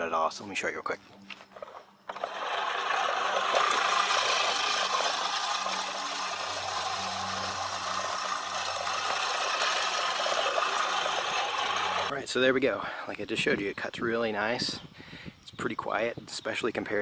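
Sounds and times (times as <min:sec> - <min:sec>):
reel mower blades whirring: 0:01.5 - 0:12.1.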